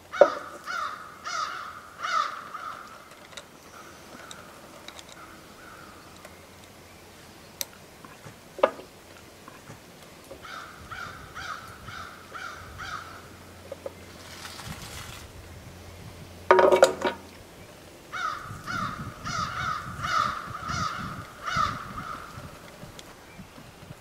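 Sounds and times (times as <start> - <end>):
crow cawing: 0.1 - 3.1, 5.2 - 6.0, 10.4 - 13.3, 18.1 - 22.4.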